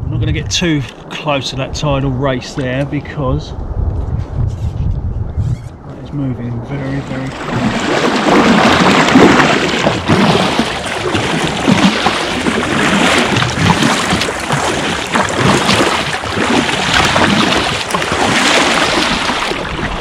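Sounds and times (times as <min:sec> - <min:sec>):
water splashing along kayak hull: 0:06.6 - 0:20.0.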